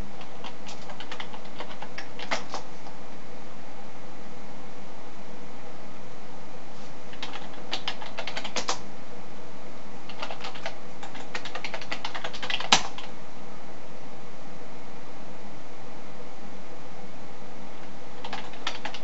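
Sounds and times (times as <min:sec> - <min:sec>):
computer keyboard typing: 0:00.2 - 0:02.7, 0:07.1 - 0:08.8, 0:10.1 - 0:13.1, 0:18.2 - 0:19.0.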